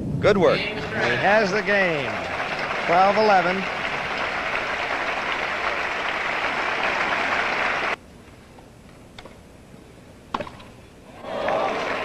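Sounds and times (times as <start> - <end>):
crowd applauding: 0.7 - 8.0, 11.2 - 12.0.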